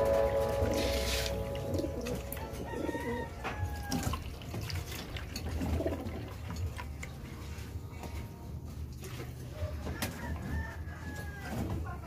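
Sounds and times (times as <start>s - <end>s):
pigeons cooing: 0.0s - 3.4s, 5.4s - 6.4s
liquid pouring into water: 3.8s - 7.2s.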